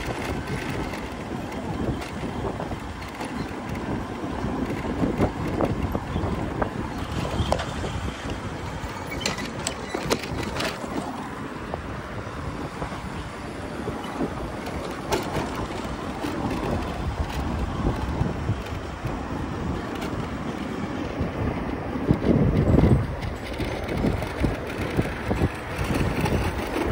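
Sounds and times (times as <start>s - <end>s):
tyres rumbling on road: 0.0s - 26.9s
wind buffeting microphone: 0.0s - 26.9s.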